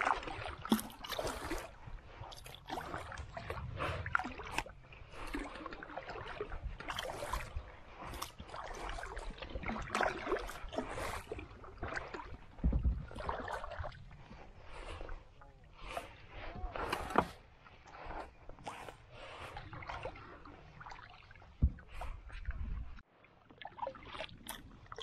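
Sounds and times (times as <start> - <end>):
paddle splashing in water: 0.0 - 25.0
wind buffet on microphone: 1.8 - 5.2.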